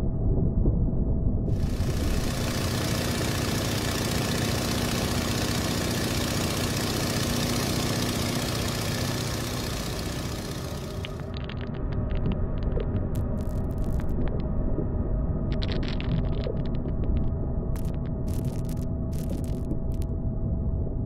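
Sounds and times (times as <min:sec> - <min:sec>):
airplane engine drone: 0:01.2 - 0:21.0.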